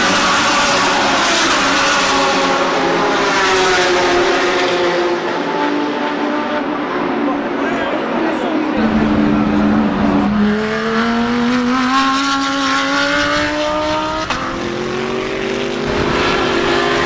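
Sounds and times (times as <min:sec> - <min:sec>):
race car engine accelerating: 0:00.0 - 0:17.0
car engine rising in pitch: 0:08.6 - 0:17.0.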